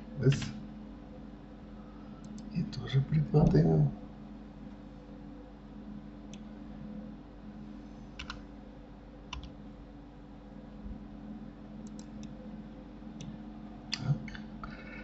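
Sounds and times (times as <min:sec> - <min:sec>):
low hum: 0:00.0 - 0:15.0
keyboard and mouse clicks: 0:08.2 - 0:08.4, 0:09.3 - 0:09.6, 0:11.8 - 0:12.3.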